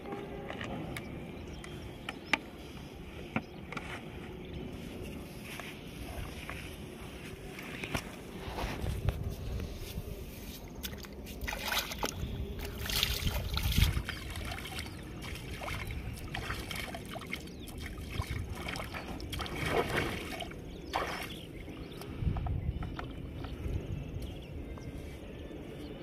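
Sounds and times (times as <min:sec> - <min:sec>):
river water splashing: 0:10.8 - 0:21.5.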